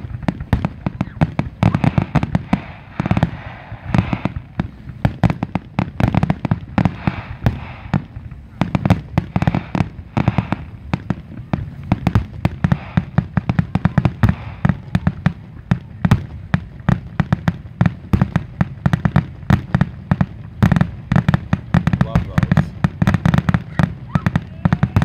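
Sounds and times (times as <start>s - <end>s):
low rumble: 0.0s - 17.8s
firework shells bursting: 0.0s - 25.0s.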